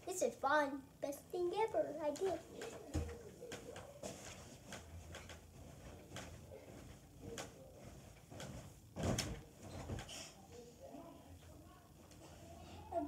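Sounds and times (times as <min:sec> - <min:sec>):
heavy thump on mattress: 0:08.3 - 0:10.1
light knocks from bed: 0:08.4 - 0:10.1.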